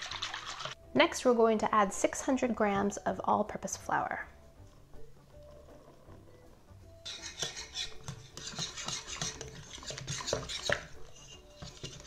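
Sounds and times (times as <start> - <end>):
whisk scraping against glass bowl: 0.0 - 0.8, 7.0 - 12.0.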